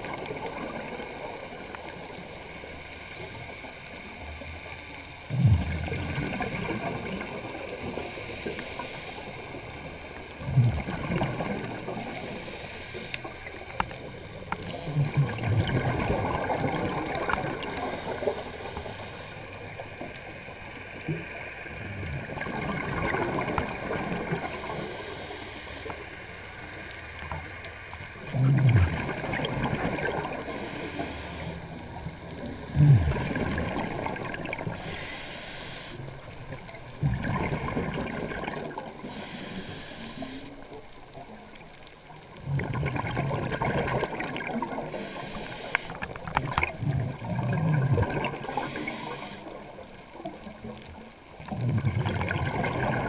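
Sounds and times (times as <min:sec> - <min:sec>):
scuba exhale bubbling: 0:00.0 - 0:53.0
regulator inhale hiss: 0:01.0 - 0:04.8, 0:07.0 - 0:10.2, 0:11.7 - 0:14.0, 0:17.5 - 0:20.5, 0:24.3 - 0:26.9, 0:30.3 - 0:33.3, 0:34.6 - 0:36.8, 0:39.0 - 0:40.9, 0:44.8 - 0:46.3, 0:48.3 - 0:50.3.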